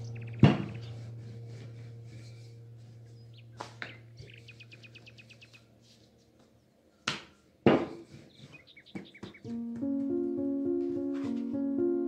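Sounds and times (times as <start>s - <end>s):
bird trill of high chirps: 0.0s - 1.0s
birds chirping: 0.0s - 1.1s, 2.2s - 5.8s.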